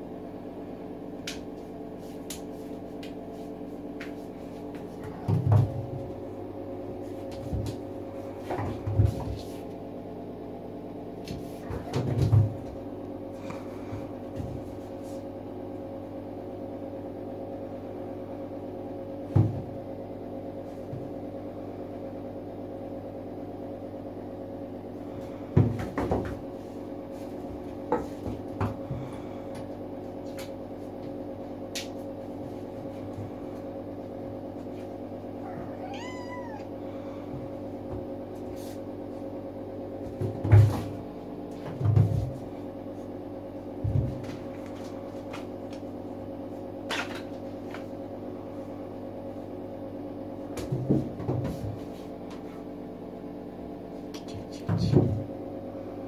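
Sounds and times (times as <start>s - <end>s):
steady hum: 0.0s - 56.0s
kitten meowing: 35.4s - 36.7s.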